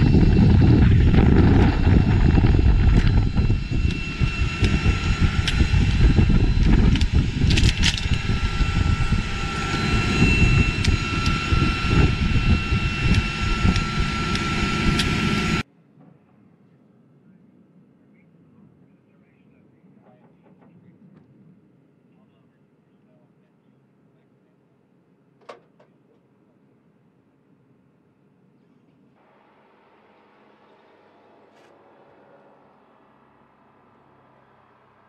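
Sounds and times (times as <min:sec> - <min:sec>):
loud rumble: 0:00.0 - 0:15.6
turbine whine: 0:00.0 - 0:15.7, 0:29.2 - 0:35.0.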